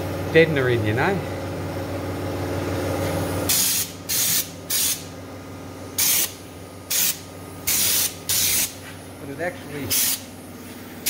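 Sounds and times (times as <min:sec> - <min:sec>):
spray gun hissing: 0:03.5 - 0:05.0, 0:06.0 - 0:06.3, 0:06.9 - 0:08.8, 0:09.9 - 0:10.2.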